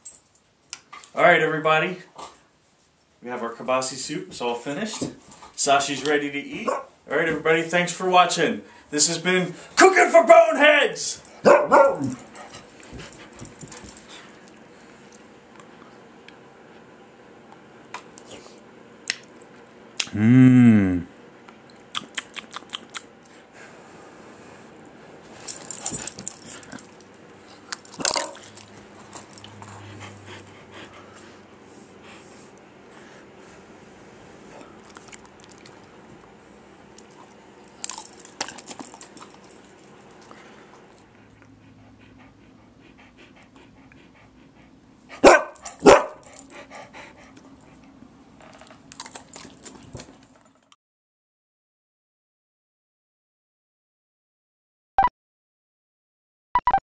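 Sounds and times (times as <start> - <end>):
dog barking: 6.6 - 6.9, 11.4 - 12.2, 45.2 - 46.2
dog panting: 28.5 - 33.3, 40.2 - 48.0.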